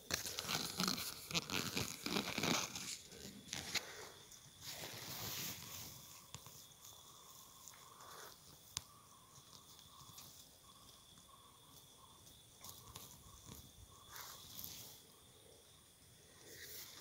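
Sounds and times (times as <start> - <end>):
faint chirping tone: 3.2 - 17.0
soft ticks: 7.6 - 13.7.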